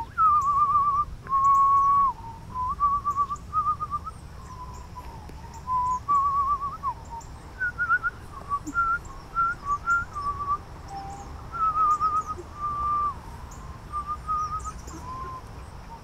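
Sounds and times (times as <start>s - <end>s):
faint high bird chirps: 0.0s - 16.0s
woman whistling a warbling tune: 0.0s - 16.0s.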